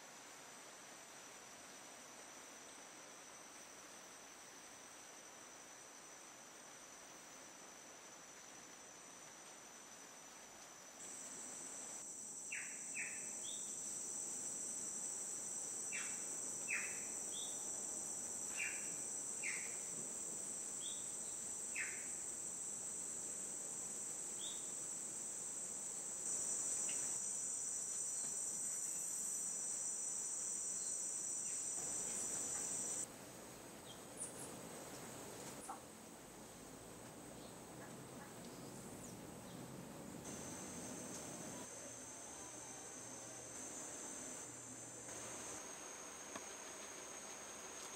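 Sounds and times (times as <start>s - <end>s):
insects trilling: 2.6s - 33.1s, 40.2s - 47.9s.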